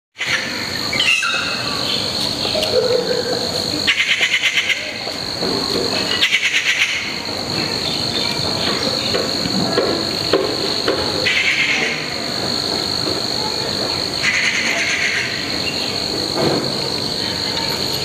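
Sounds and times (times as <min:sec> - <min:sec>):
fast pulsing insect calls: 0:00.2 - 0:18.0
insect chorus drone: 0:00.2 - 0:18.0
short insect chirps: 0:00.3 - 0:05.4.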